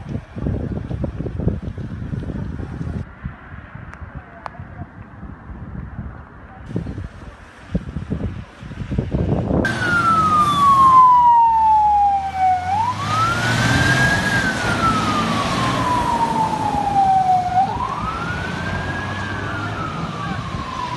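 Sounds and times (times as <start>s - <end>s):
truck engine rumbling: 6.7s - 20.9s
fire engine siren wailing: 9.7s - 20.9s.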